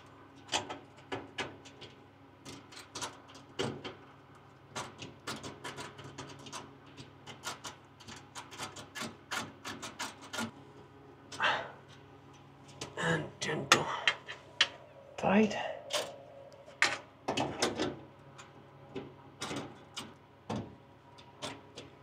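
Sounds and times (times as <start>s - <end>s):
faint low hum: 10.4s - 22.0s.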